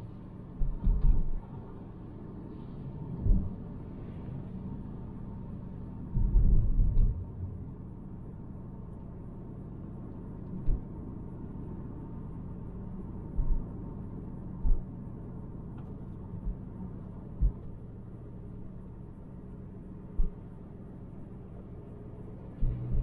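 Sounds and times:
car cabin road rumble: 0.0s - 23.0s
short low thumps: 0.6s - 1.4s, 3.2s - 3.5s, 6.2s - 7.2s, 17.4s - 17.7s, 22.6s - 23.0s.

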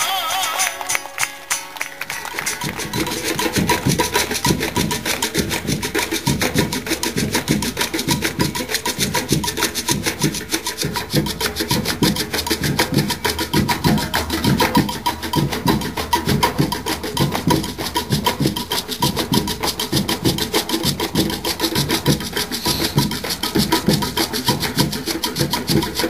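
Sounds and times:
drums playing fast rhythm: 2.1s - 26.0s.

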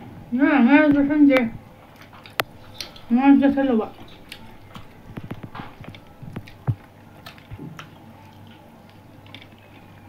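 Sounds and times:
fingers mixing food on steel plates: 0.9s - 10.0s
chewing and mouth smacks: 1.9s - 3.1s, 3.9s - 10.0s.

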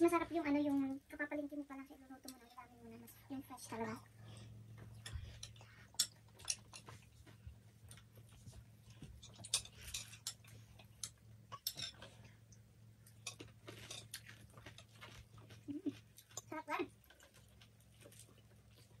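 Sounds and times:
low steady hum: 0.0s - 19.0s
chewing sounds: 4.9s - 19.0s.

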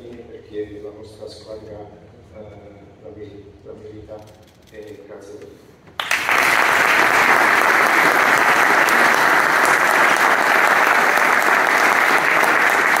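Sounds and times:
audience clapping: 6.0s - 13.0s.

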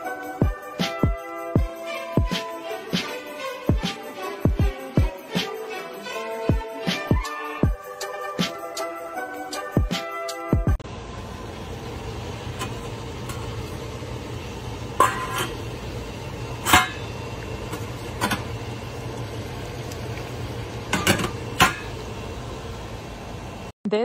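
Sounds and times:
pot lid clinking: 14.9s - 15.6s, 16.6s - 18.5s, 20.9s - 22.0s.

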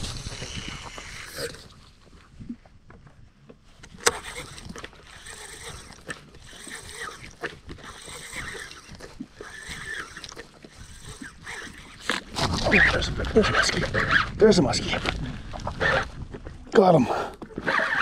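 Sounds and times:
fishing reel being cranked: 0.0s - 1.8s, 3.8s - 16.2s, 17.4s - 18.0s
water lapping against boat: 3.8s - 14.2s.

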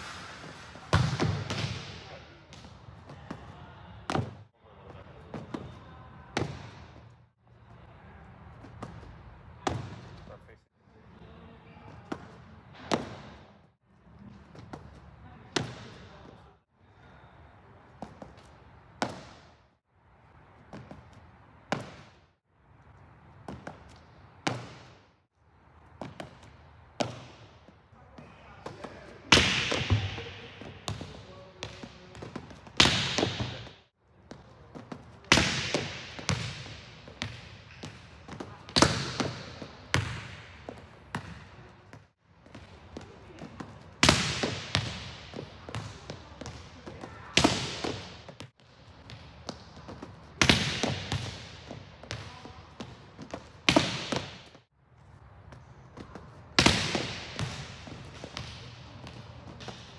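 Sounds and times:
ball bouncing on court floor: 0.5s - 4.4s, 5.3s - 7.1s, 8.6s - 10.2s, 11.9s - 13.5s, 14.5s - 16.4s, 20.7s - 22.2s, 23.4s - 25.1s, 25.9s - 54.6s, 55.5s - 59.9s
volleyball being struck: 0.9s - 2.0s, 35.3s - 40.6s.

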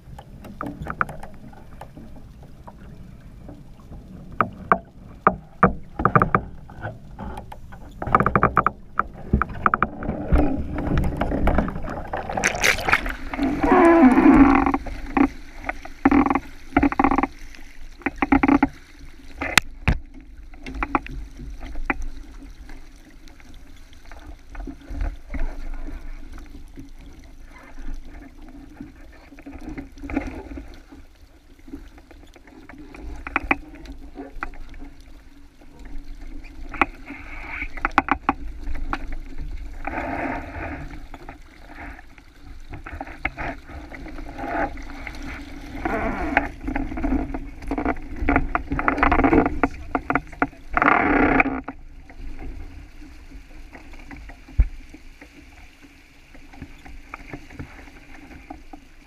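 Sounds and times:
water rushing along boat hull: 0.0s - 59.0s
sharp clicks and knocks: 4.4s - 13.1s.

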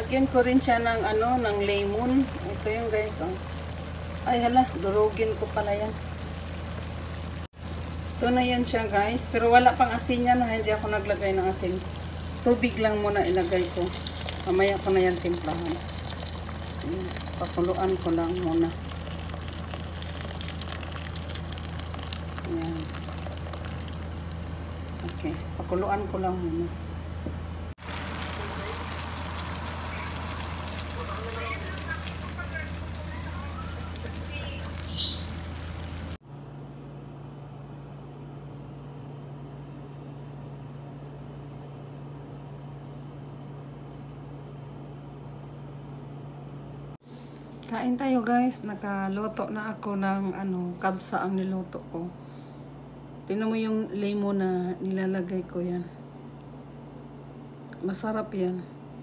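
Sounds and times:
low mechanical hum: 0.0s - 59.0s
water pouring into a pot: 11.5s - 25.3s, 27.8s - 36.2s.

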